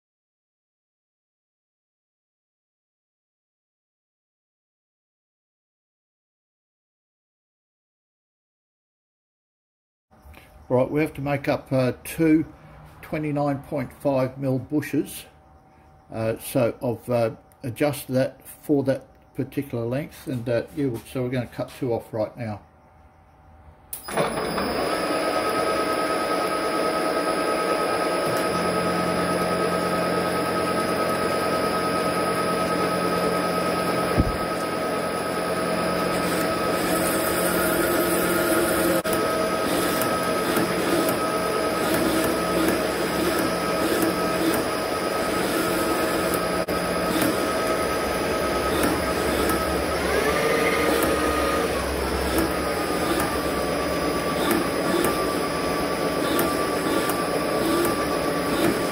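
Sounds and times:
metal lathe humming: 24.2s - 58.9s.

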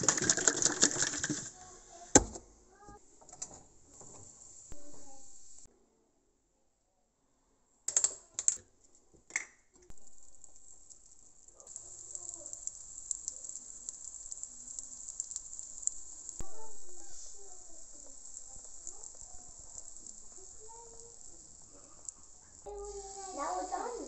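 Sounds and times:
batter sizzling in a pan: 3.8s - 5.7s, 9.9s - 24.0s.

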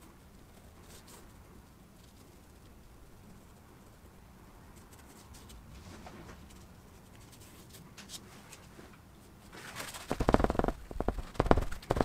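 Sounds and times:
rapid knocking and rubbing: 9.9s - 12.0s.

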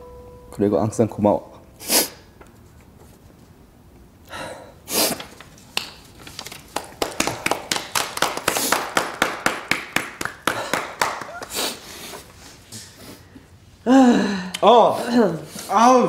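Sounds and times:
breathy sniffs: 1.8s - 2.2s, 4.3s - 5.2s, 11.5s - 13.4s
people clapping: 5.7s - 11.8s.

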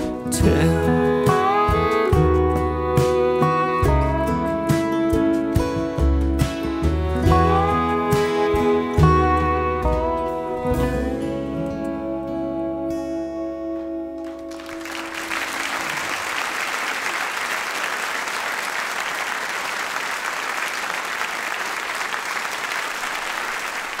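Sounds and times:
audience applause: 14.2s - 24.0s.

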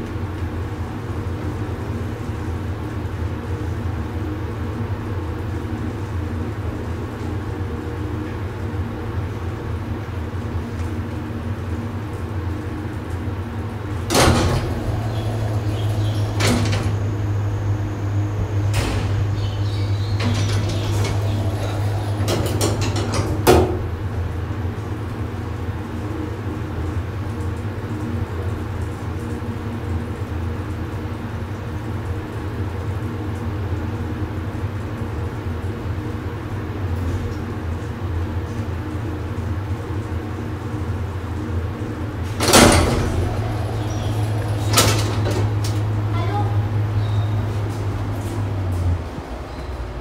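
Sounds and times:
elevator machinery hum: 0.0s - 50.0s
elevator clunks and rattles: 13.8s - 24.8s, 42.0s - 50.0s.

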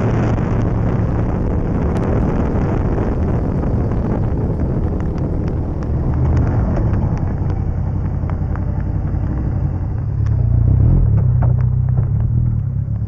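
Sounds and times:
wind rushing: 0.0s - 10.0s
motorcycle engine running: 0.0s - 13.0s.

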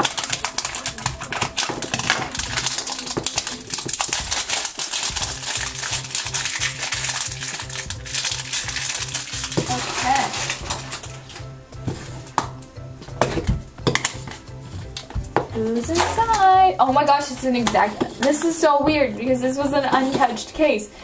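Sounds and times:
scissors snipping plastic: 0.0s - 11.4s
plastic film crinkling: 0.0s - 18.7s
background music with beat: 0.0s - 20.2s.

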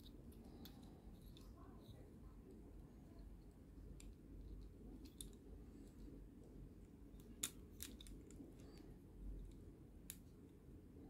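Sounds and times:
faint low hum: 0.0s - 11.0s
plastic toy parts clicking: 7.2s - 8.4s.

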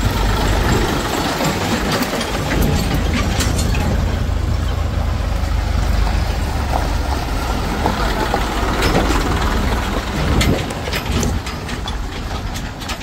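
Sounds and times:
heavy diesel engine running: 0.0s - 13.0s.

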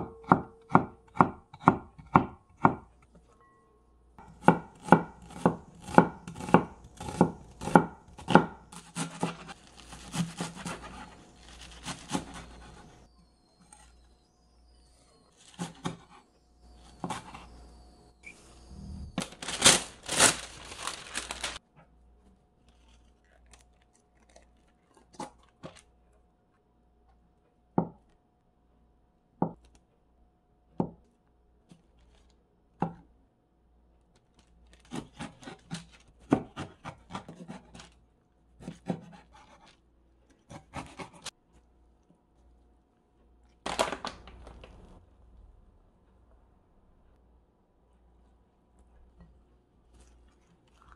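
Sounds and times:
scraping and rustling: 19.2s - 21.6s.

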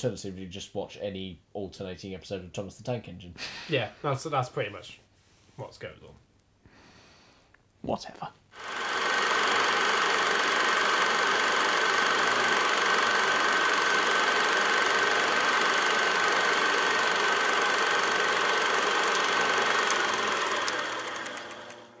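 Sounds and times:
engine running: 8.6s - 22.0s.

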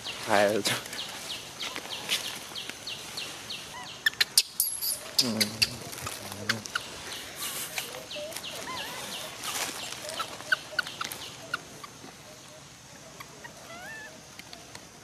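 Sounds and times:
animal chirps and clucking calls: 3.4s - 15.0s.

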